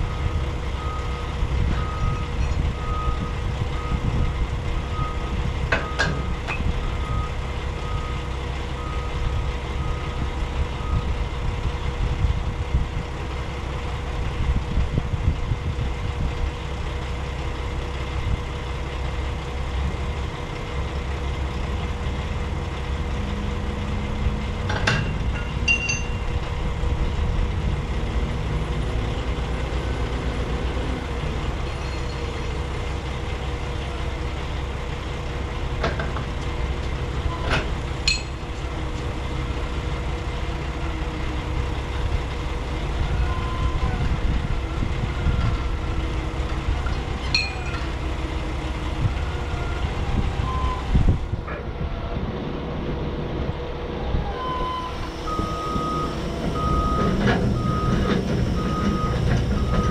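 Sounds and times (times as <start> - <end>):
truck engine idling: 0.0 - 59.9
sharp metal clanks: 24.7 - 26.3, 38.0 - 38.4, 47.3 - 47.9
backup alarm beeping: 54.5 - 59.9.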